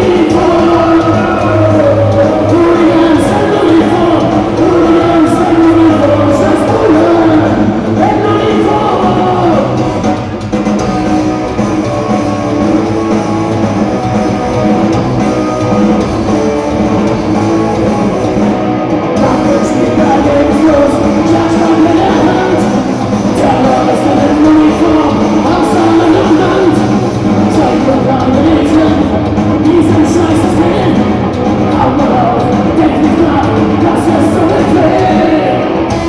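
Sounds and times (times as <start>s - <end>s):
person singing lead vocal: 0.0s - 9.9s, 19.2s - 36.0s
live rock band playing: 0.0s - 36.0s.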